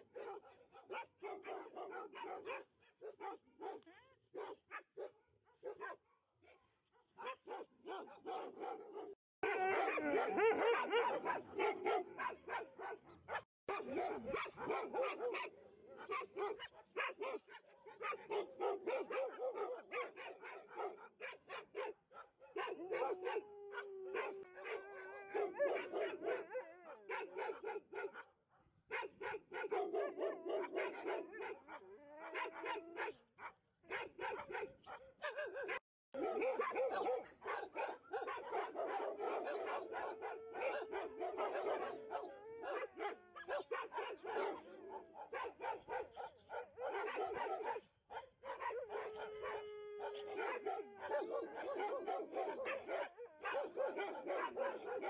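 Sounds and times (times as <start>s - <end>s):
dogs barking and yipping: 0.0s - 55.0s
dog howling: 9.4s - 12.1s, 22.6s - 27.3s, 30.0s - 33.2s, 36.2s - 45.3s, 48.5s - 55.0s.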